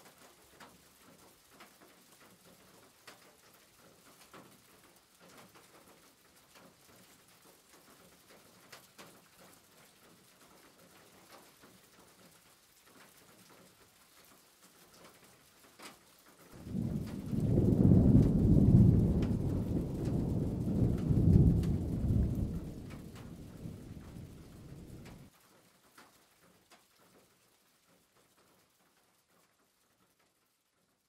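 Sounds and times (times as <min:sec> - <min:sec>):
loud low rumble: 0:16.6 - 0:25.2.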